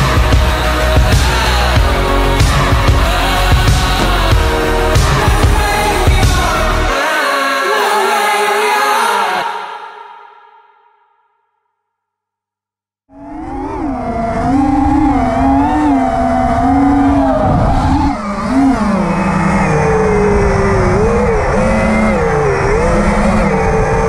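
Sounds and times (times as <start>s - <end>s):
drone motors whining: 0.0s - 6.9s, 13.1s - 24.0s
wind rush: 13.6s - 24.0s.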